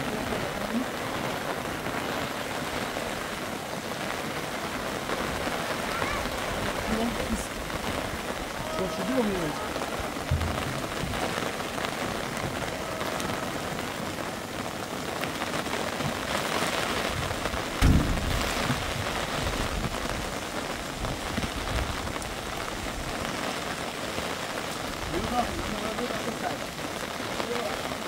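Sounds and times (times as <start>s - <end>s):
rain pattering: 0.0s - 28.0s
dull thump: 10.3s - 11.2s, 17.8s - 19.0s.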